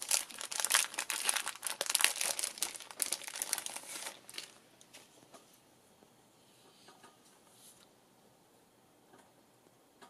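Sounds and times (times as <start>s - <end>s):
cellophane crinkling: 0.0s - 4.6s.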